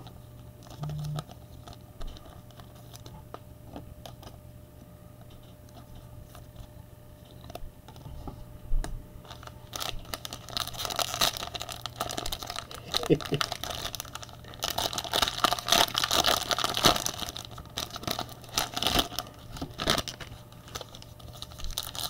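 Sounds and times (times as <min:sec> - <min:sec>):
foil wrapper crinkling and tearing: 0:00.0 - 0:03.4, 0:04.0 - 0:04.4, 0:09.2 - 0:22.0.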